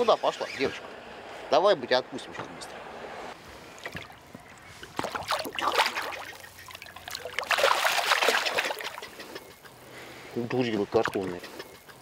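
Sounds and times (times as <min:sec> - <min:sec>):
fish splashing water: 0:03.7 - 0:09.8.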